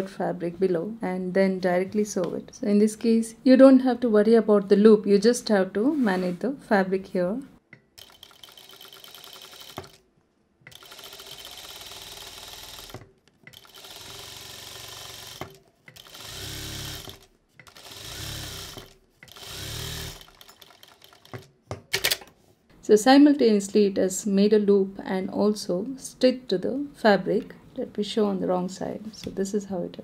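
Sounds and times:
industrial sewing machine stitching: 8.0s - 10.0s, 10.7s - 22.2s.

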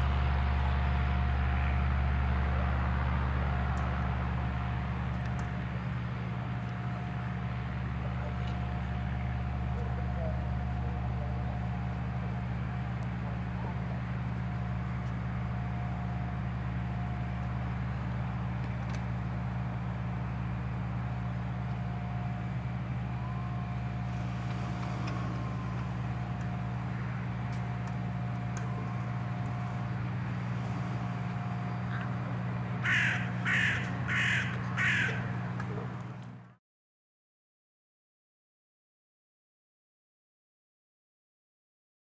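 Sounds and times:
light aircraft engine droning: 0.0s - 36.6s
crow cawing: 31.0s - 35.4s.

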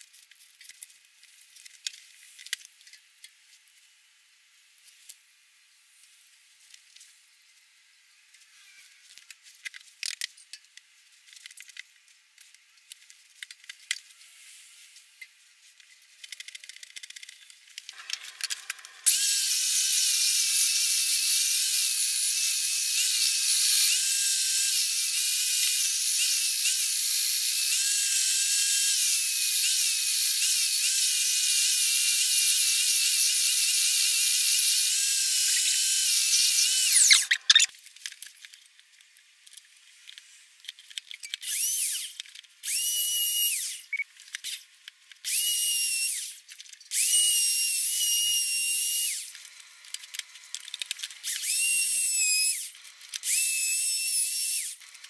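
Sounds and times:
belt sander whining: 18.0s - 37.7s.

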